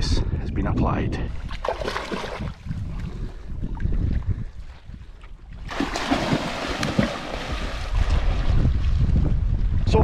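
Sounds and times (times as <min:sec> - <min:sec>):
wind rumbling on microphone: 0:00.0 - 0:10.0
loud splashing: 0:05.6 - 0:08.8.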